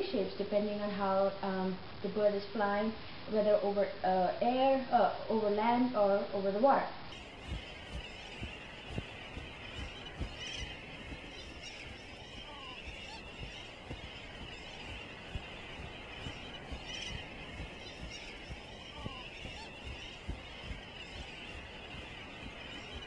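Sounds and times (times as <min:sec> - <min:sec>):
seabird colony honking chatter: 0:07.1 - 0:23.0
uneven low rumble: 0:07.1 - 0:23.0.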